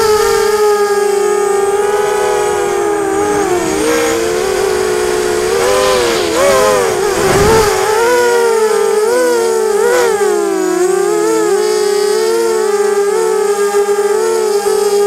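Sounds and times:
wind noise rush: 0.0s - 9.8s
drone motors whining: 0.0s - 14.1s.

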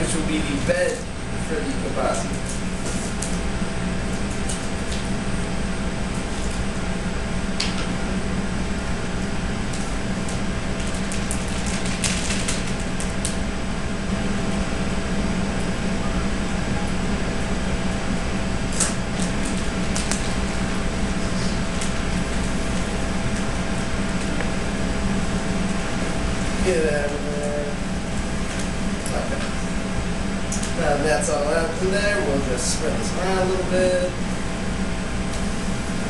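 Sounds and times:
kitchen ventilation hum: 0.0s - 36.0s
plastic package crinkling: 10.8s - 13.4s.

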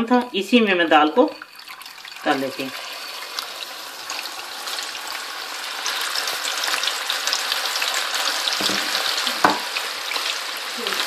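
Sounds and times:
lentils deep-frying in hot oil: 0.0s - 11.0s.

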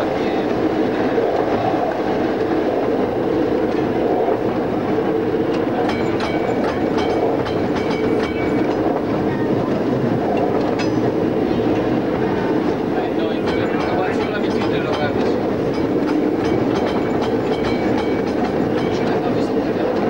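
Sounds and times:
tram wheels rumbling on rail: 0.0s - 20.0s
clicks and clatter over track: 5.5s - 12.0s, 12.7s - 20.0s.

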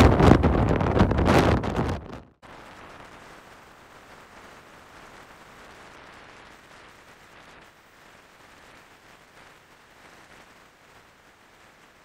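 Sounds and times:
wind buffeting microphone: 0.0s - 2.4s
faint steady hiss: 2.4s - 12.0s.

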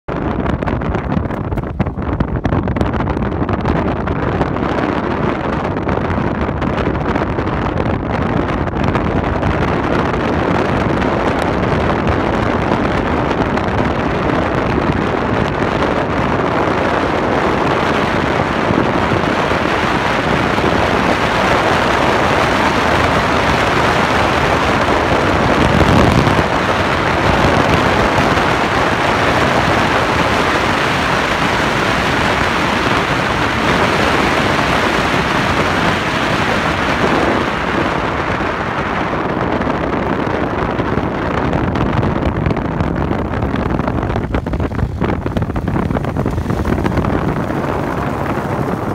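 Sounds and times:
wind buffeting microphone: 0.0s - 48.9s
dirt bike engine running: 0.1s - 4.0s, 39.6s - 48.9s.

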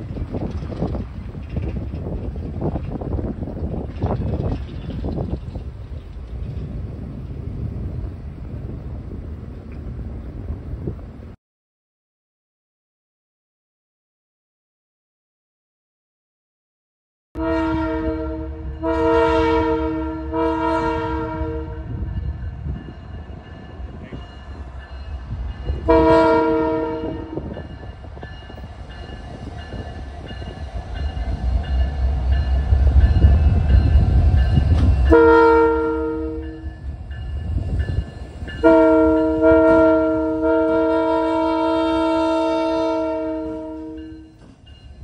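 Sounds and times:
locomotive air horn blasts: 17.4s - 22.1s, 25.8s - 27.5s, 35.0s - 36.8s, 38.6s - 44.3s.

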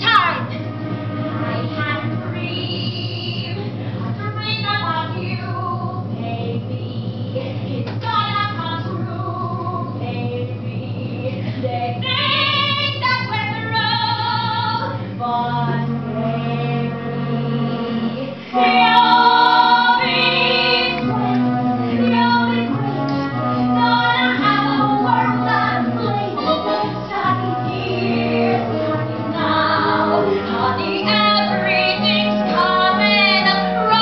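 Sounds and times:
instrumental accompaniment: 0.0s - 34.0s
woman singing show tune: 18.6s - 21.2s.

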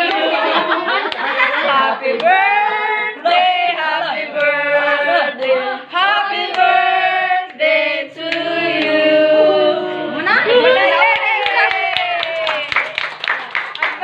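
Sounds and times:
voices singing a melody: 0.0s - 10.9s.

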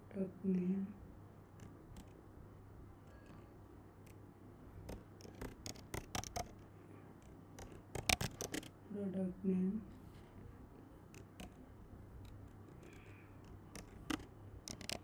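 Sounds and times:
computer keyboard typing: 1.6s - 2.2s, 4.8s - 6.6s, 7.2s - 8.7s, 11.1s - 15.0s.

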